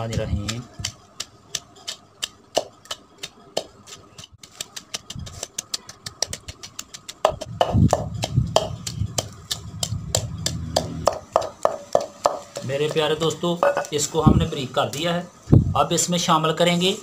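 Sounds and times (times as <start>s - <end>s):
wooden pestle pounding in mortar: 0.0s - 13.9s
low steady hum: 7.4s - 11.7s.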